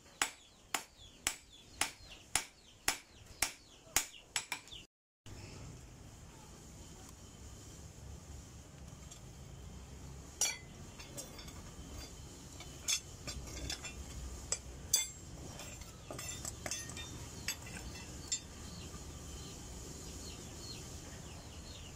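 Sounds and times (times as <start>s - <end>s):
metal knife blanks clinking: 10.4s - 18.6s.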